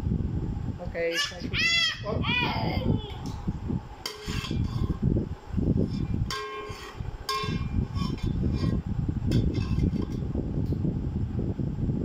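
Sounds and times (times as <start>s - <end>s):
metal ladle clanking in pot: 4.0s - 5.0s, 5.9s - 10.2s.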